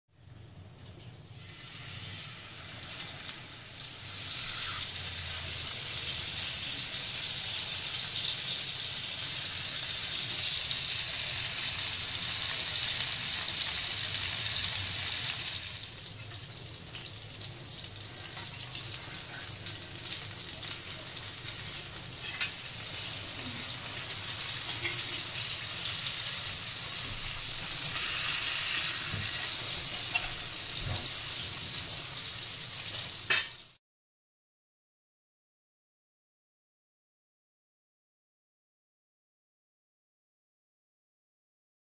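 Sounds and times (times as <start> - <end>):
fish sizzling in hot oil: 1.3 - 33.8.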